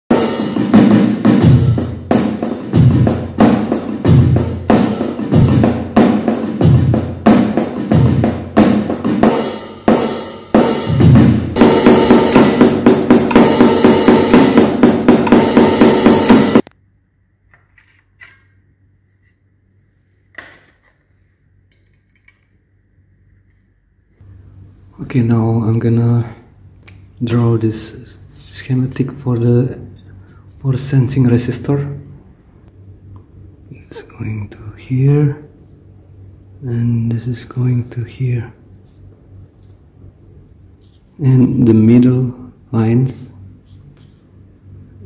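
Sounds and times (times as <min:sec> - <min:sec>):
electronic drum beat: 0:00.1 - 0:16.6.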